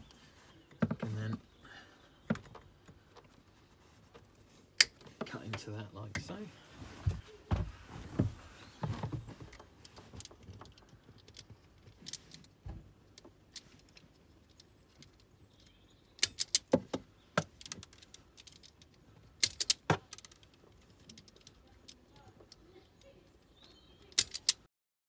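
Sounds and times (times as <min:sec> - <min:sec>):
wire strippers clicking: 0:09.5 - 0:16.8, 0:17.4 - 0:24.7.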